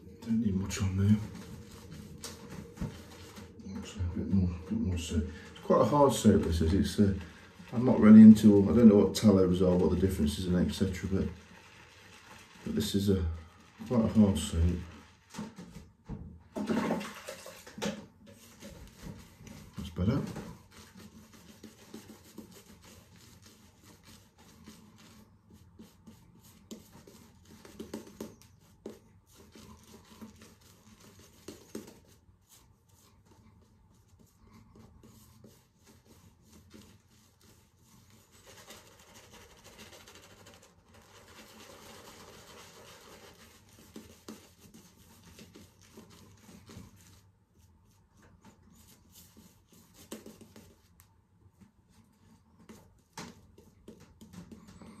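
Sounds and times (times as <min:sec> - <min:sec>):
shaving brush rubbing: 0:18.4 - 0:47.7.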